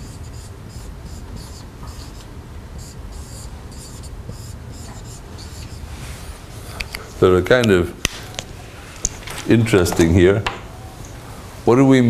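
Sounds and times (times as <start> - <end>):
marker writing on whiteboard: 0.0 - 5.9
low room hum: 0.0 - 12.0.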